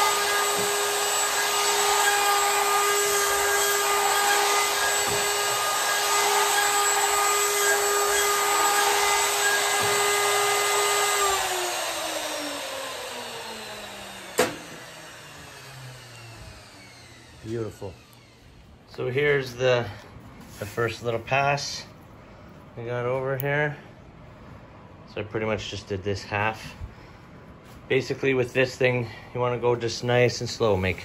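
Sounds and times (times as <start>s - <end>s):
router whining: 0.0s - 19.0s.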